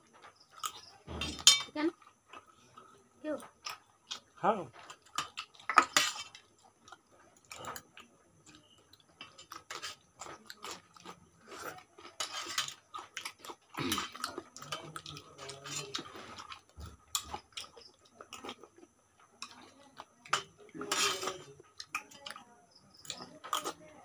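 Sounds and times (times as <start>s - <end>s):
people chewing food: 0.0s - 24.0s
spoons clinking on steel bowl: 20.3s - 21.5s.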